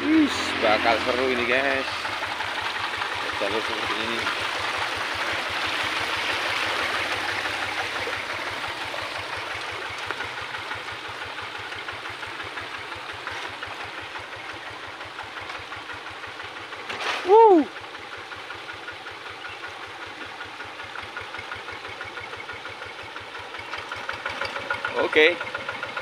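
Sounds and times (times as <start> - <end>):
water rushing over weir: 0.0 - 14.3
diesel engine idling: 0.0 - 26.0.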